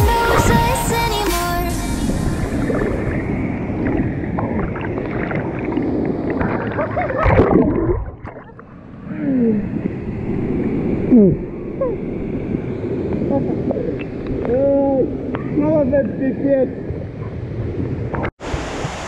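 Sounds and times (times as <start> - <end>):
waterfall rushing and splashing: 18.4 - 19.0.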